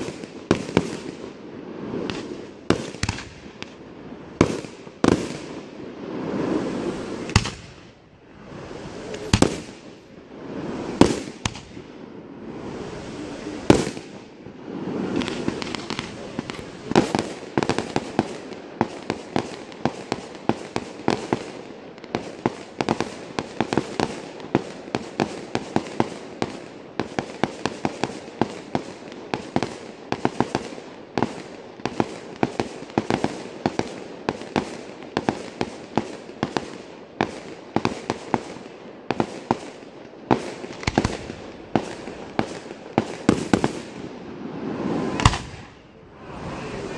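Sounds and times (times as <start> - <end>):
rush of noise: 6.3 - 7.4, 8.2 - 11.0, 12.4 - 13.8, 44.6 - 46.9
firework shell bursts: 8.6 - 10.2
rapid barrage of sharp reports: 46.1 - 46.9.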